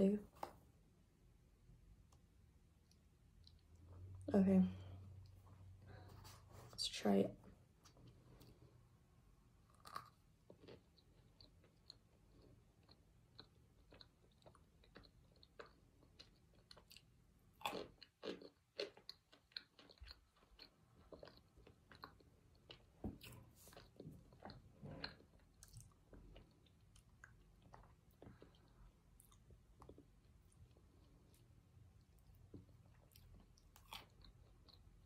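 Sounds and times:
chewing with small crunches: 2.8s - 4.3s, 9.6s - 35.0s.

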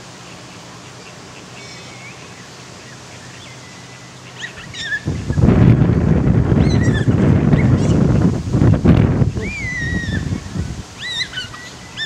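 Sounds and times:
wind buffeting microphone: 4.6s - 12.0s.

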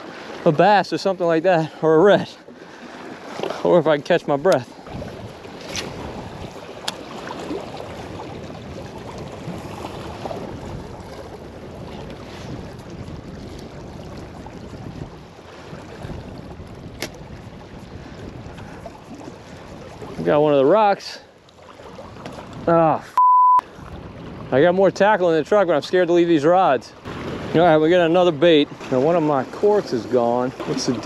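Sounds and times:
river water washing on rocks: 3.2s - 11.4s, 27.0s - 31.0s
wind buffeting microphone: 3.9s - 20.6s, 23.7s - 26.3s, 27.1s - 31.0s.

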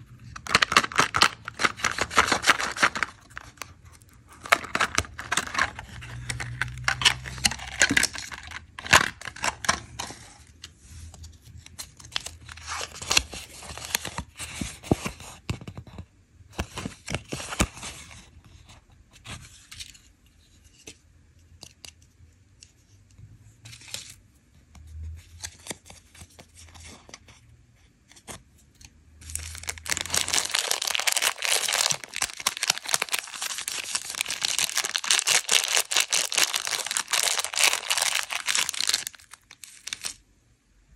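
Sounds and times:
plastic wrapper crinkling: 0.2s - 9.8s, 29.2s - 40.2s
paper rustling: 29.3s - 40.2s.

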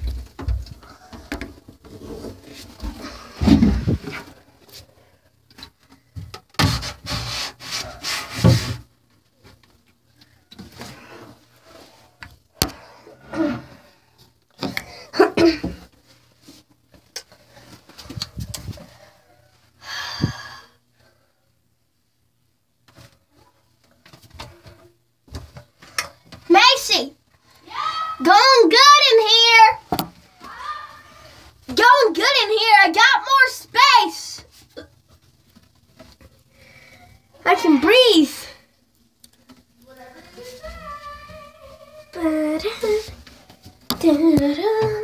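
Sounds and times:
rustling and bumping of objects: 0.0s - 20.4s, 22.7s - 27.9s, 34.4s - 37.4s, 38.6s - 45.0s.

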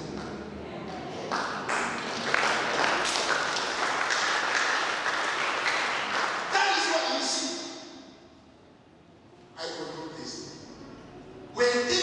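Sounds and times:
crowd applauding: 1.3s - 7.2s.

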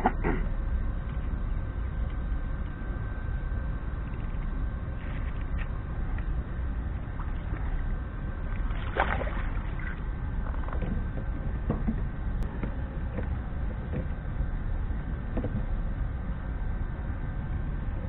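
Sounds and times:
steady low rumble: 0.0s - 18.0s
fish splashing at water surface: 8.6s - 10.0s.

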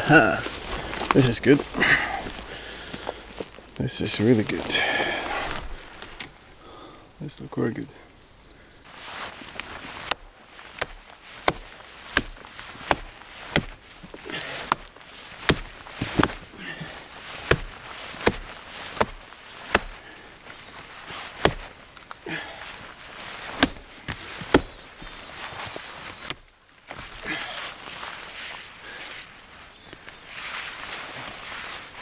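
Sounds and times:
hatchet chopping: 9.6s - 20.1s, 21.3s - 21.7s, 23.4s - 24.9s.

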